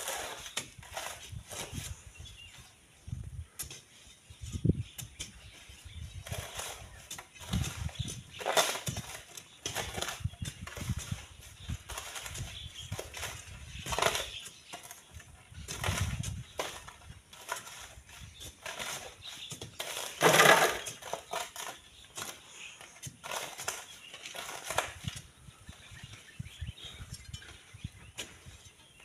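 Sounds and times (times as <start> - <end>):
sand and gravel scraping and sliding: 0.0 - 2.8, 5.7 - 25.9.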